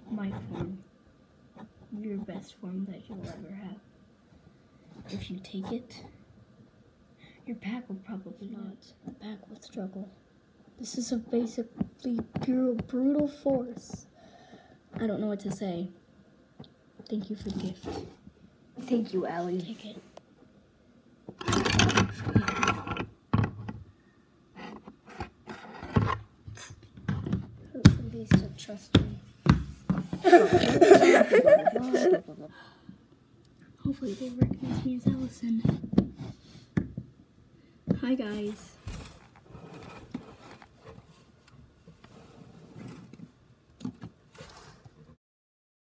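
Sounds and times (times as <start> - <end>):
objects rustling and scraping: 17.2 - 18.4, 21.3 - 23.9, 24.5 - 27.7, 37.9 - 45.2
knocks and scuffs on hard surface: 27.0 - 30.3.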